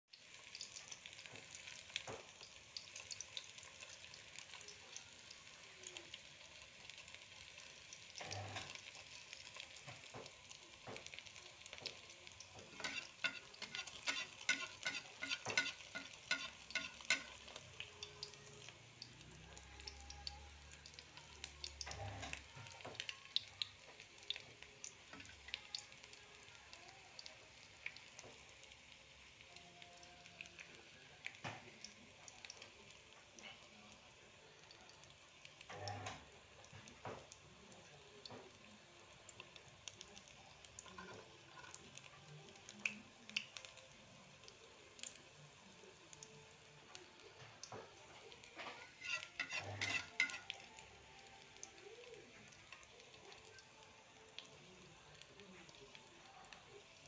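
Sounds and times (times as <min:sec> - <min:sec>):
food sizzling in hot oil: 0:00.0 - 0:57.0.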